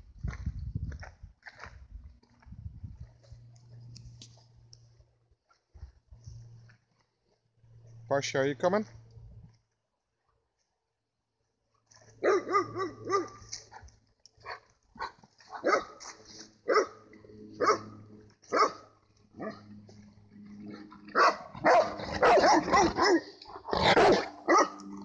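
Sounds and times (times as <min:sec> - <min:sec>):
dogs barking and yelping: 0:12.1 - 0:19.8, 0:20.6 - 0:25.0.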